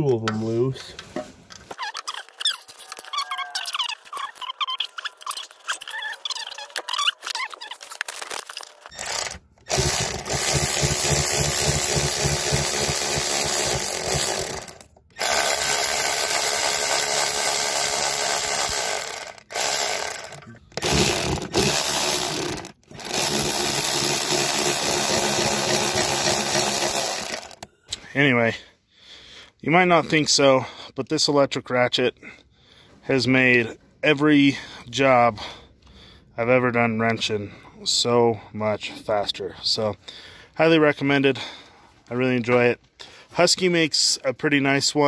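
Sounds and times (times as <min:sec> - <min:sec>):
electric ratchet spinning: 0:08.9 - 0:27.7.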